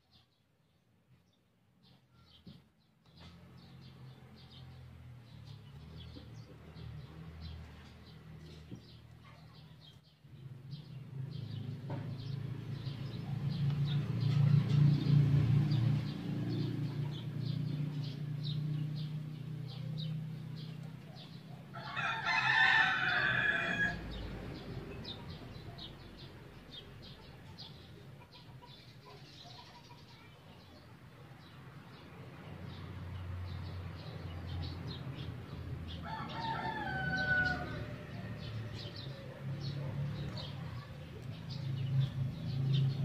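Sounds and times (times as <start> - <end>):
rooster crowing: 21.7 - 24.2, 36.0 - 38.4.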